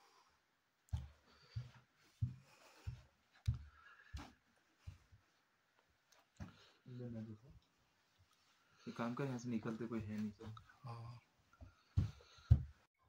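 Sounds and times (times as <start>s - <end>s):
footsteps on wooden floor: 0.9s - 6.8s, 11.6s - 12.9s.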